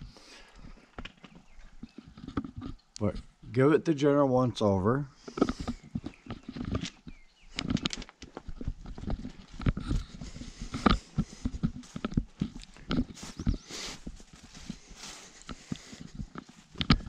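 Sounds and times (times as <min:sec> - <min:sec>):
footsteps on grass and gravel: 0:05.1 - 0:17.0.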